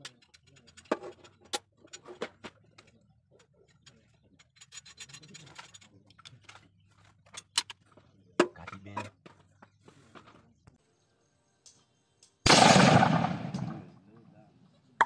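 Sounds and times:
metal rubbing and scraping: 0:00.0 - 0:07.9.

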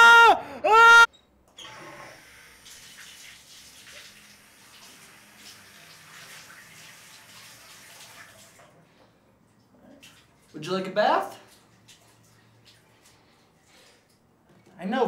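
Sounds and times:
water running from bathtub tap: 0:02.0 - 0:08.8, 0:09.9 - 0:14.2.

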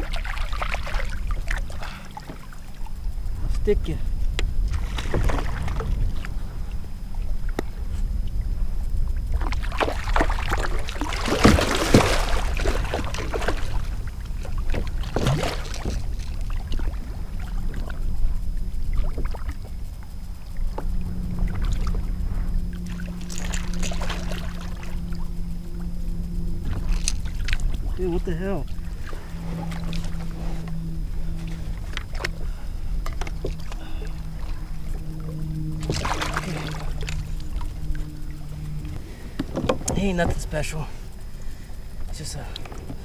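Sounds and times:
water slapping around kayak: 0:00.0 - 0:43.0
wind buffeting microphone: 0:00.0 - 0:43.0
fish thrashing and splashing: 0:09.4 - 0:18.0, 0:28.8 - 0:39.8.

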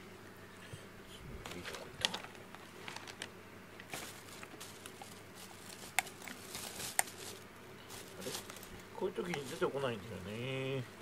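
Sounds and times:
small objects clicking and rustling: 0:01.4 - 0:09.7.

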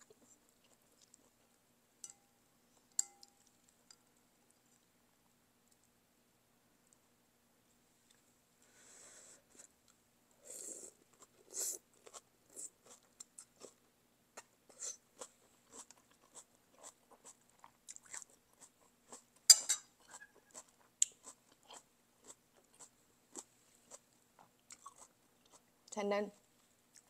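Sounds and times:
chewing with wet mouth clicks: 0:00.0 - 0:01.4, 0:14.7 - 0:19.2, 0:20.0 - 0:25.7.

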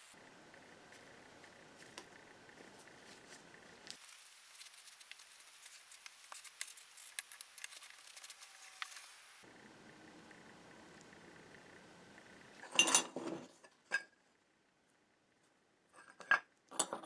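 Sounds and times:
rag rustling: 0:00.9 - 0:09.0.

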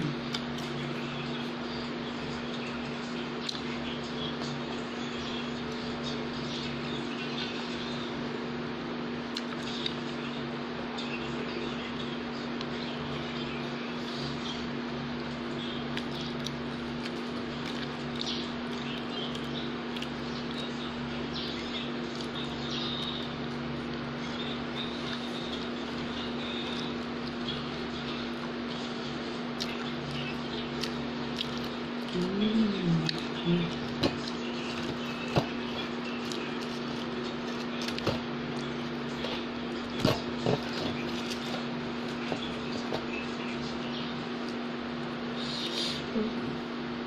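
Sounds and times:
steady low hum and hiss: 0:00.0 - 0:47.0
person chewing food: 0:15.9 - 0:20.6, 0:29.5 - 0:32.2, 0:33.0 - 0:43.2.

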